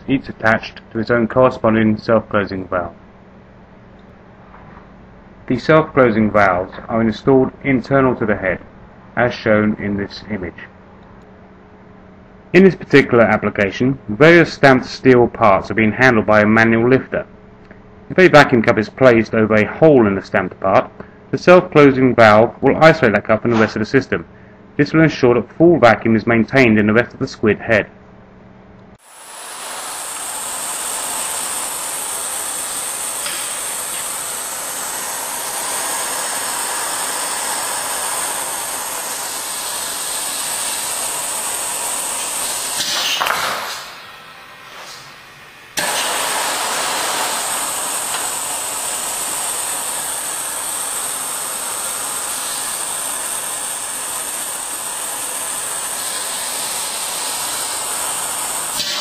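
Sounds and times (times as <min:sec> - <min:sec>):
vacuum air hiss: 0:29.0 - 0:59.0.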